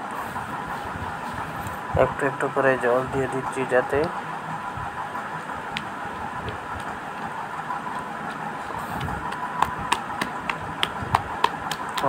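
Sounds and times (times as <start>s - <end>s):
hand squishing wet batter: 5.3s - 12.0s.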